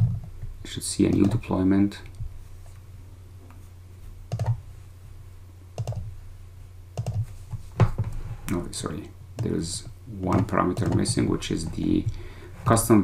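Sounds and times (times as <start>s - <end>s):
low steady hum: 0.0s - 13.0s
computer mouse clicks: 1.1s - 1.4s, 4.3s - 4.6s, 5.8s - 6.1s, 7.0s - 7.3s, 10.3s - 12.2s.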